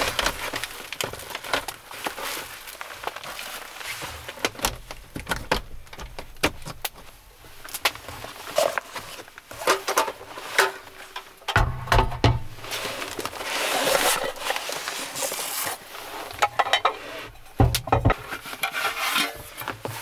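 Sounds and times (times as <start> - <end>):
foil pouch rustling: 0.0 - 11.5, 12.4 - 20.0
gear clicks and knocks: 4.2 - 14.6, 16.4 - 18.2.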